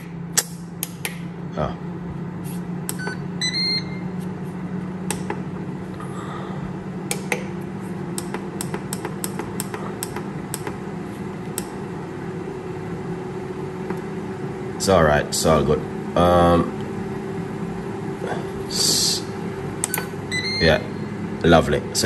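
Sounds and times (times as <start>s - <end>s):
air fryer fan humming: 0.0s - 22.0s
short electronic beeps: 3.0s - 4.1s, 19.9s - 21.1s.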